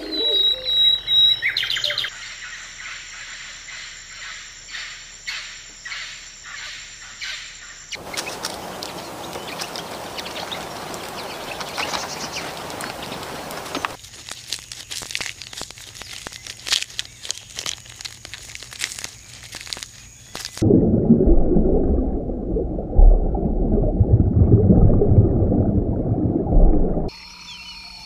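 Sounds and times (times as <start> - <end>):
outdoor background noise: 0.0 - 22.1
birds chirping: 7.9 - 14.0.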